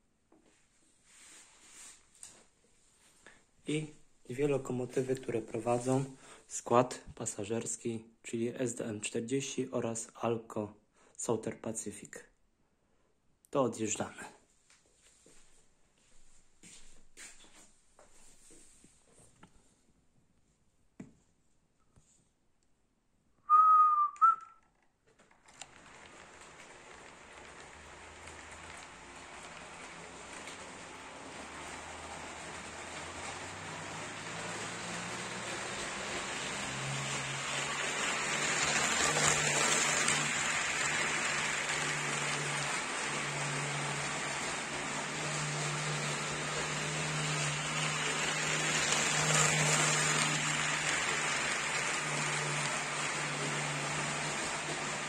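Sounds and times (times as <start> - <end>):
whistled notes: 23.4 - 24.6
model train running on track: 25.4 - 55.0.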